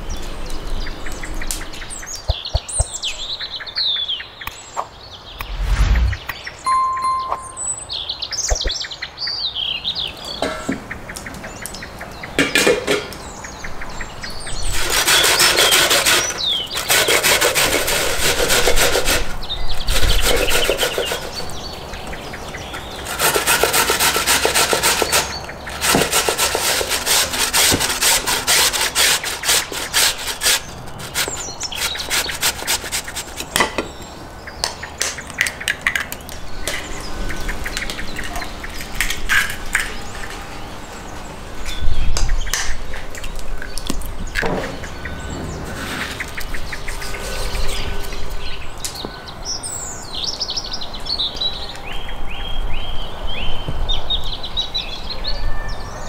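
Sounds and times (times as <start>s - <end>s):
potatoes grated on metal grater: 14.7s - 19.3s, 23.0s - 33.4s.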